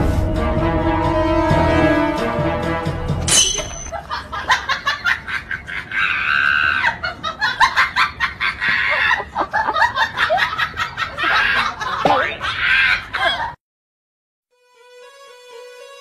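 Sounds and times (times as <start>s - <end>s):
laughter: 3.9s - 13.6s.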